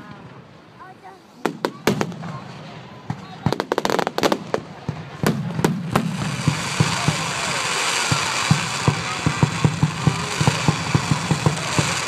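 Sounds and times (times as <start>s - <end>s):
firework fountain hissing: 0.1s - 12.0s
firework bangs: 1.4s - 12.0s.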